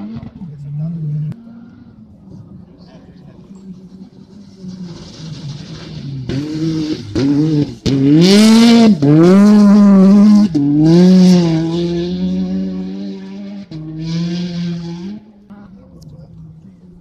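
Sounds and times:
rally car engine revving past: 3.7 - 15.4.

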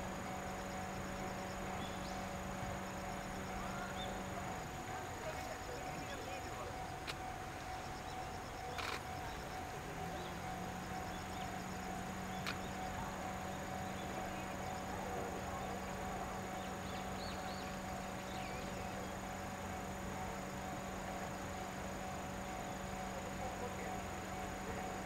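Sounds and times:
steam locomotive whine: 0.0 - 25.0
sharp clicks: 12.4 - 12.7.

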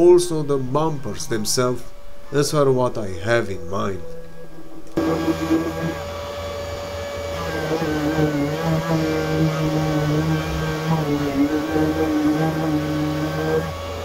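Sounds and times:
orbital sander whine: 4.2 - 14.0
wet-and-dry vacuum running: 4.9 - 14.0.

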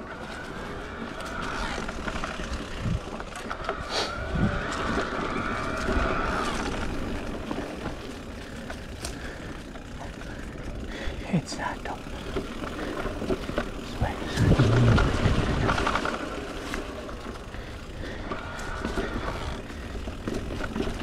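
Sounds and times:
bike tyre and drivetrain rush: 0.0 - 21.0.

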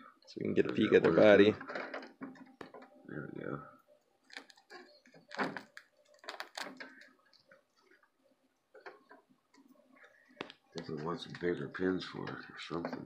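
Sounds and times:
plastic film peeling and crinkling: 4.2 - 9.2.

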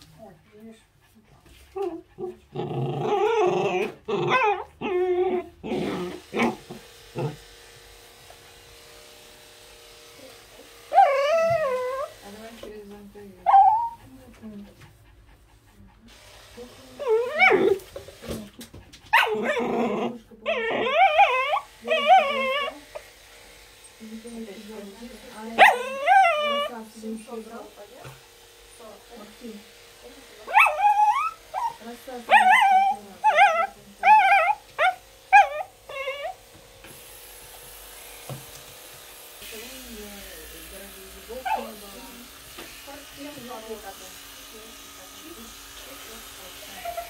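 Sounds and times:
puppy crying: 1.7 - 7.4, 10.9 - 12.2, 13.4 - 14.1, 17.0 - 17.8, 19.1 - 23.1, 25.6 - 26.8, 30.4 - 36.5, 41.3 - 41.8, 46.7 - 47.0.

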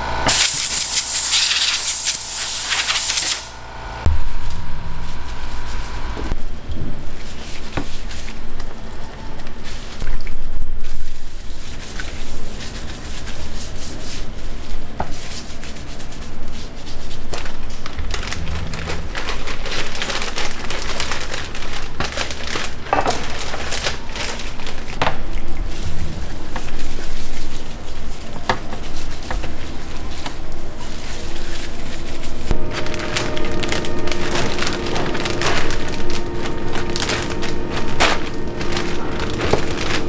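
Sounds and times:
plastic bag crinkling: 17.4 - 25.0, 32.5 - 40.0.

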